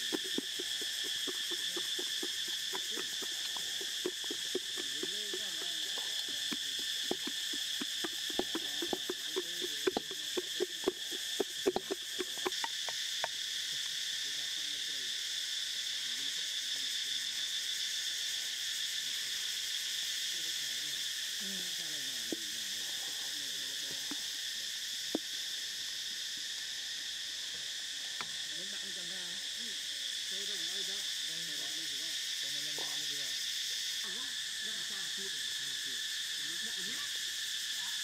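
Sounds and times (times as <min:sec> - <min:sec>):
insects chorus: 0:00.0 - 0:38.0.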